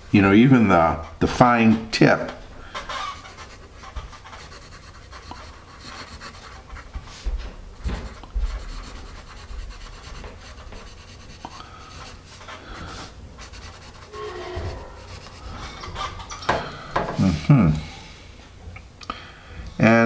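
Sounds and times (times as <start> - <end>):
pencil scratching on paper: 2.8 - 16.2.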